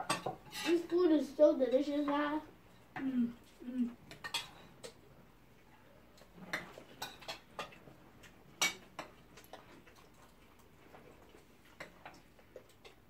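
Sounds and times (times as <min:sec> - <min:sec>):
metal spoons clinking on plates: 0:00.0 - 0:01.0, 0:04.1 - 0:05.0.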